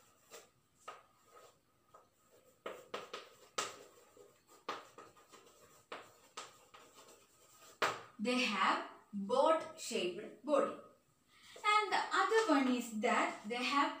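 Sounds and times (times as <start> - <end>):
chalk writing on a blackboard: 0.0 - 8.1.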